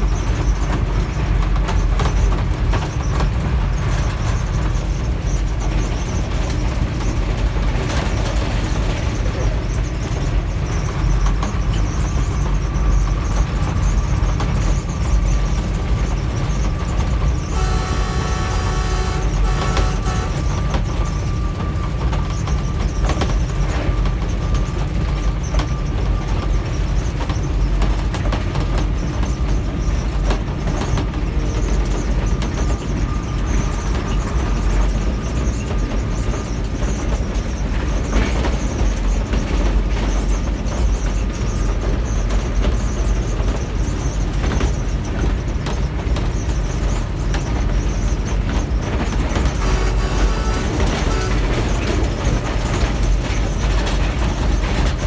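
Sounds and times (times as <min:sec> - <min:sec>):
locomotive engine and wheels rumbling: 0:00.0 - 0:55.0
locomotive horn blast: 0:17.4 - 0:20.9, 0:49.5 - 0:52.2.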